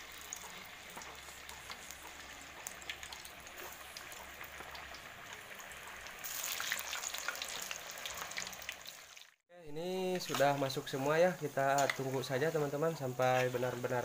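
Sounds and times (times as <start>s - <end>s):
dough sizzling in hot oil: 0.0s - 9.4s, 10.0s - 14.0s.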